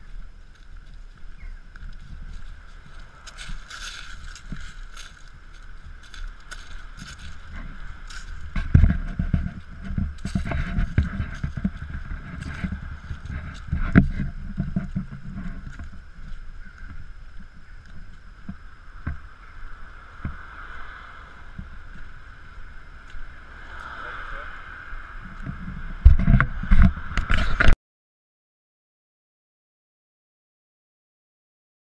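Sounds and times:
camera jostling rumble: 0:00.0 - 0:20.5, 0:25.1 - 0:27.8.

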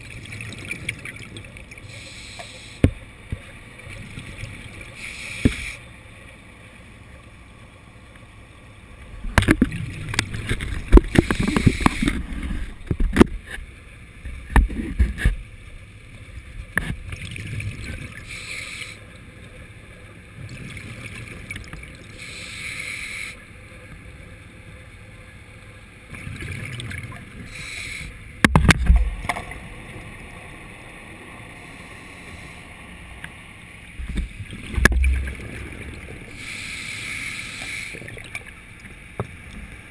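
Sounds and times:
underwater bubbling and rushing water: 0:00.0 - 0:39.9.

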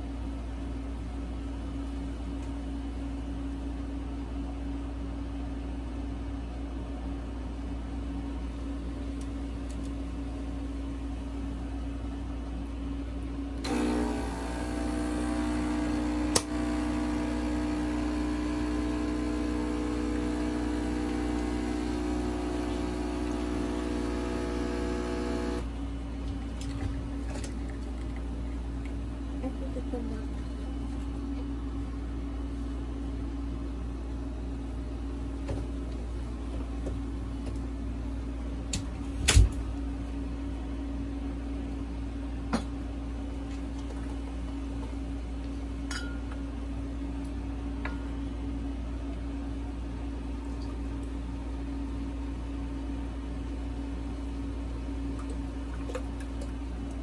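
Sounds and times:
coffee machine low hum: 0:00.0 - 0:57.0
coffee machine pump buzzing: 0:13.6 - 0:25.8.

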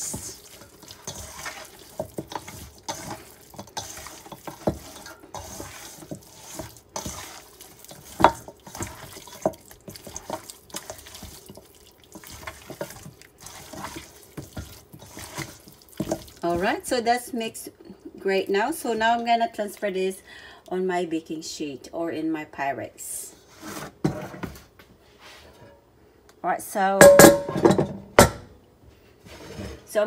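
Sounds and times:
wet squelches of raw chicken: 0:05.6 - 0:16.5.

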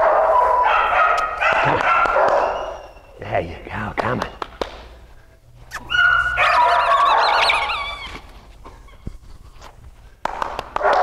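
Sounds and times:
dog whining: 0:02.2 - 0:03.2, 0:05.7 - 0:09.0.

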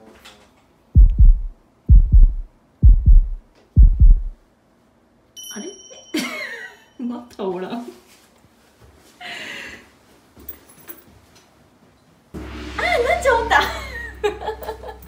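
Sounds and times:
deep heartbeat: 0:01.0 - 0:04.4.

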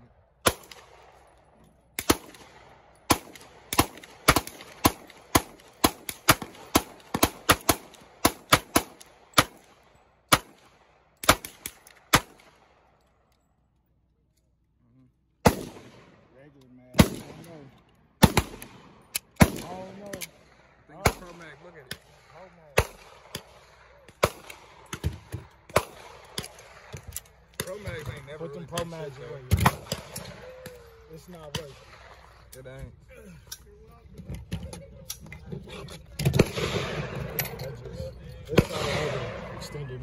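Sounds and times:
pistol shots: 0:00.4 - 0:01.2, 0:02.0 - 0:12.9, 0:15.4 - 0:16.2, 0:16.9 - 0:17.6, 0:18.2 - 0:28.0, 0:28.7 - 0:30.4, 0:36.3 - 0:37.4, 0:38.5 - 0:39.5.

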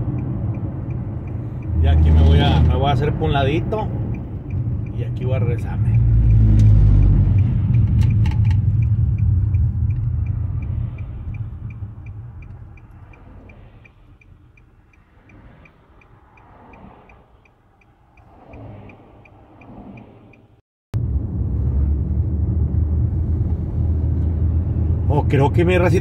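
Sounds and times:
turn signal ticking: 0:00.0 - 0:20.6
car engine and road rumble: 0:00.0 - 0:26.0.

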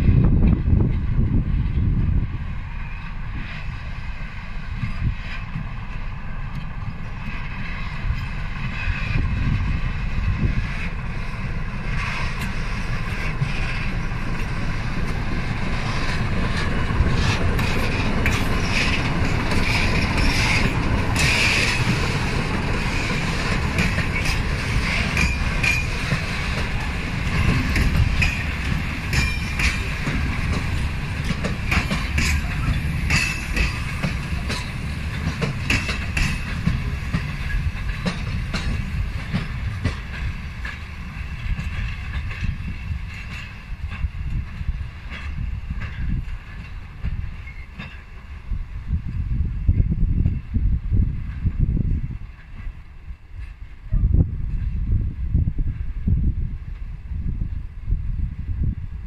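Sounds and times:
diesel locomotive passing: 0:00.0 - 0:59.0
wheels clicking over rail joints: 0:04.7 - 0:48.3
wheels squealing: 0:15.8 - 0:38.4.

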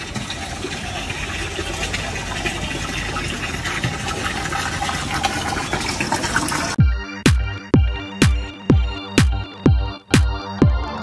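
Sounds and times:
water splashing into a basin: 0:00.0 - 0:06.8.

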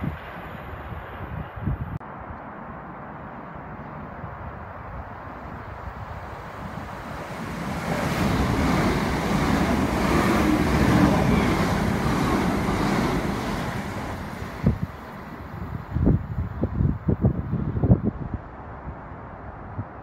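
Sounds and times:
wind buffeting microphone: 0:00.0 - 0:02.0, 0:04.2 - 0:20.0
train wheels rumbling on rails: 0:06.1 - 0:16.7.

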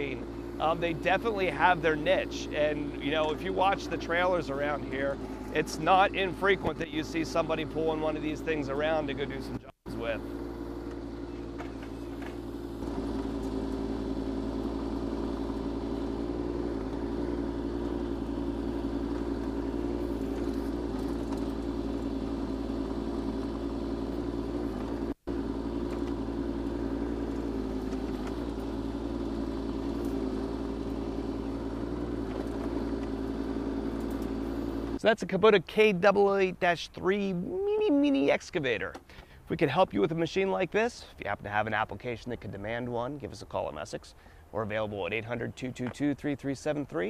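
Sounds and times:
excavator blade pushing soil: 0:00.0 - 0:35.0
diesel excavator engine running: 0:00.0 - 0:35.2.

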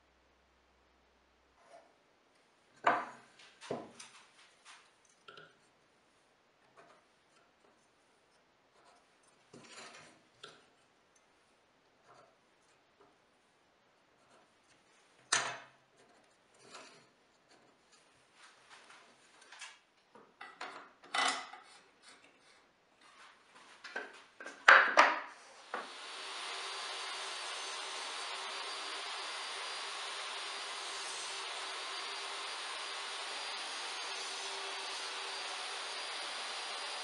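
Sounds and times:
wooden objects knocking on workbench: 0:02.8 - 0:04.0, 0:23.9 - 0:25.9.

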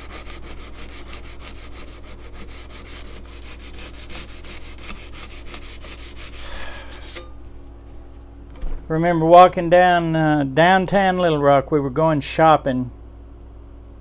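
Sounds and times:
sanding steel blade by hand: 0:00.0 - 0:07.3.

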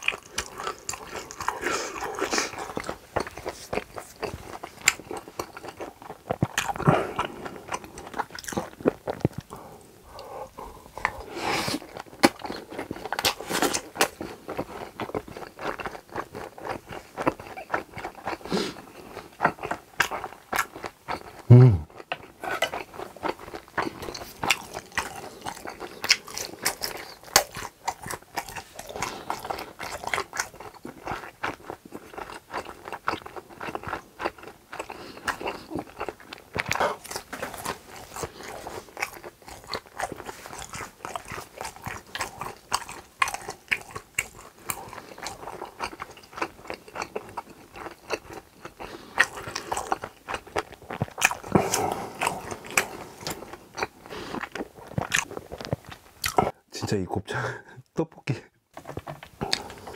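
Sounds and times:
wet chewing: 0:00.0 - 0:56.6, 0:58.8 - 0:59.9.

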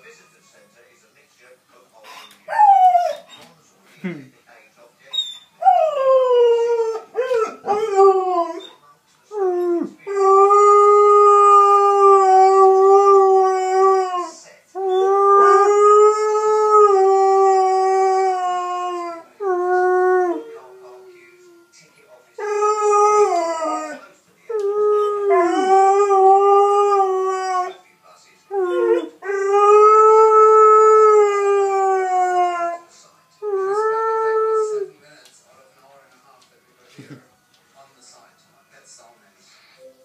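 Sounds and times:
puppy howling: 0:02.5 - 0:03.3, 0:05.2 - 0:08.8, 0:22.4 - 0:27.8, 0:28.5 - 0:32.8.

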